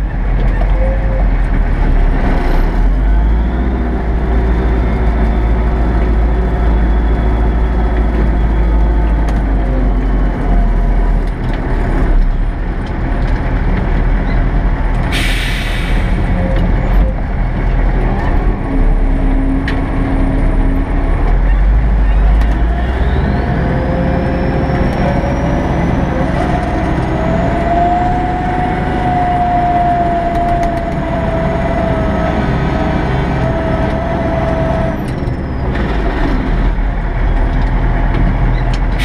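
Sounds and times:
tractor diesel engine running: 0.0s - 39.0s
air release hiss: 15.1s - 16.2s.

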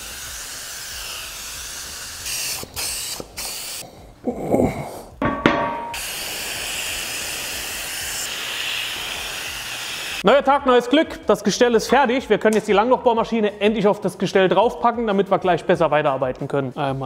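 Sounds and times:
paint spray gun hissing: 0.0s - 3.8s, 5.9s - 10.2s
metal frame clanking: 5.2s - 6.0s.

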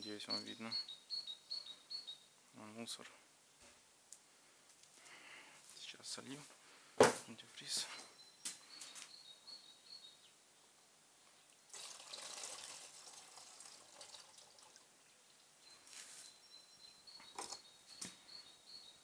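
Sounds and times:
faint chirps: 0.0s - 2.3s, 7.3s - 11.6s, 15.0s - 19.0s
liquid trickling into funnel: 11.7s - 15.2s.

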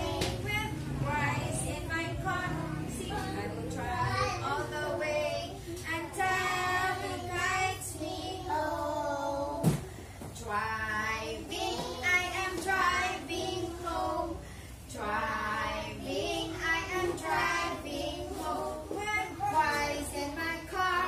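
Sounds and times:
woman singing: 0.0s - 8.0s, 10.4s - 21.0s
children singing: 0.0s - 9.8s, 10.5s - 21.0s.

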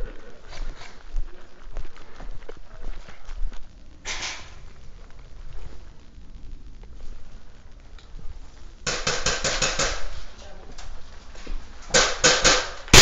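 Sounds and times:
airsoft gun shots echoing: 11.9s - 13.0s.

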